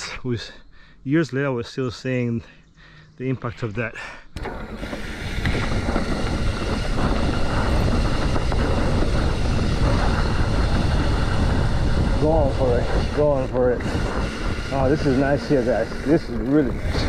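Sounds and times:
bike rolling over dirt trail: 4.4 - 17.0
wind buffeting microphone: 4.4 - 17.0.

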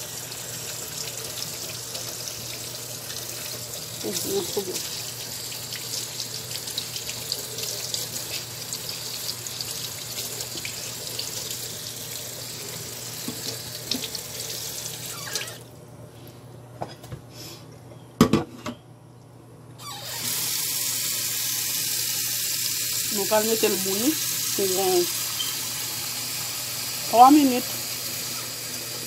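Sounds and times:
tap water running into sink: 0.0 - 15.6.

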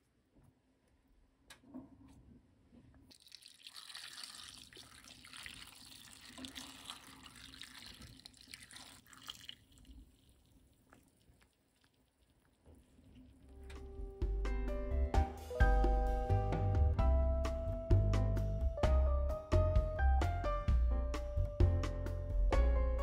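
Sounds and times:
liquid pouring into glass container: 3.1 - 13.2.

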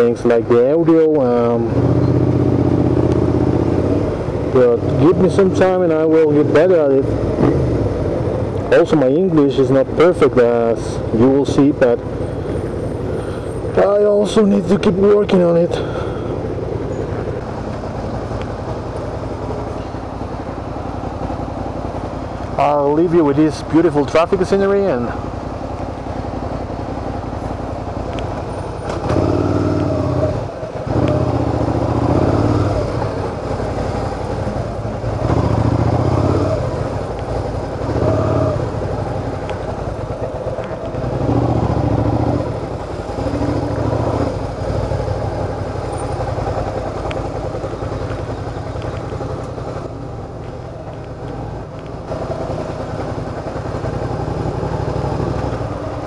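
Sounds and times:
motorcycle engine revving: 1.3 - 8.5, 25.9 - 56.0.

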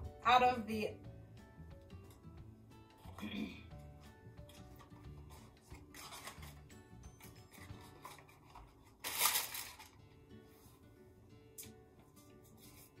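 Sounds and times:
soft background music: 0.0 - 13.0
foil wrapper tearing and crinkling: 5.3 - 10.0.

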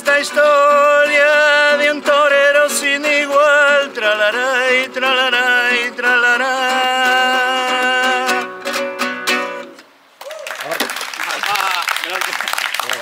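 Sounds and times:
man singing: 0.0 - 8.6
strummed acoustic guitar: 0.0 - 9.9.

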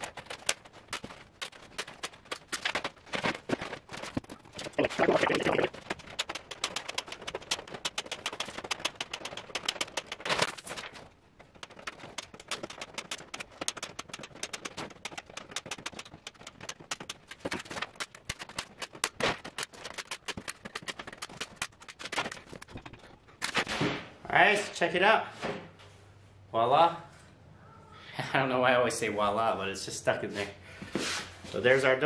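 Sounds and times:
wire clicking and rattling: 0.0 - 23.6.

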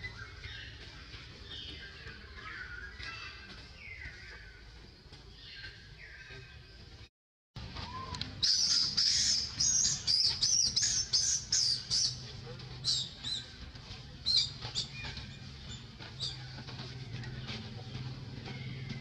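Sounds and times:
high-pitched chirping calls: 8.4 - 12.2.

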